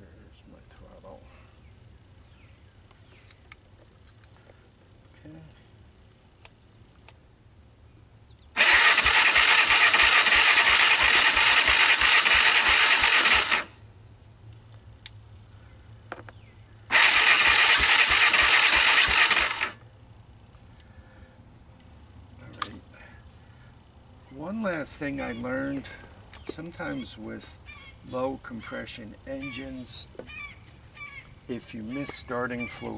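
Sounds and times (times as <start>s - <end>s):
engine cranking with starter whir: 8.5s - 13.8s, 16.9s - 19.8s.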